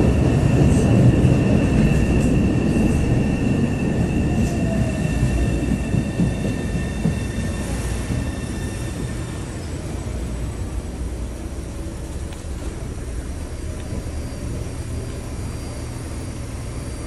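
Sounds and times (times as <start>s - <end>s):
subway train rumbling: 0.0s - 17.0s
high wheel squeal: 0.9s - 10.0s.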